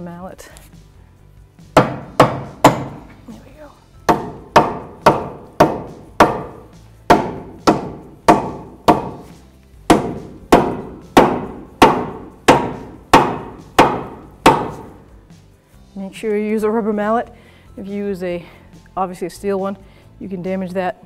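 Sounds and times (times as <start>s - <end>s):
rubber mallet striking metal: 1.7s - 3.2s, 4.0s - 9.3s, 9.9s - 15.0s.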